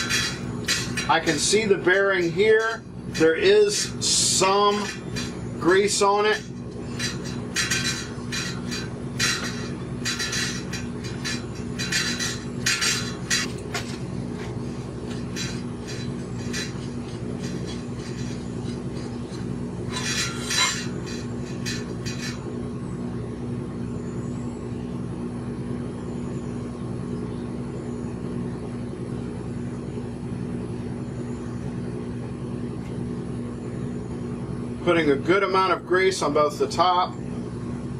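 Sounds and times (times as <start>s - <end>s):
metal bike parts clinking: 0.0s - 22.6s
low hum: 0.0s - 34.8s.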